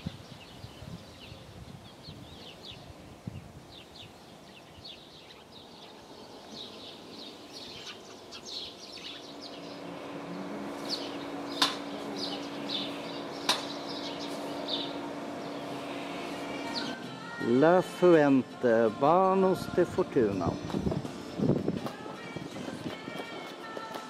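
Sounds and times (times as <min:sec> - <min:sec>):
small birds chirping: 0:00.0 - 0:17.4.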